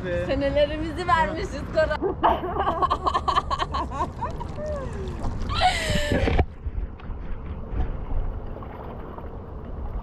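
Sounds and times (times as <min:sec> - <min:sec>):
woman laughing: 0:02.0 - 0:06.4
wind rumbling on microphone: 0:03.9 - 0:10.0
paddle splashes: 0:04.0 - 0:10.0.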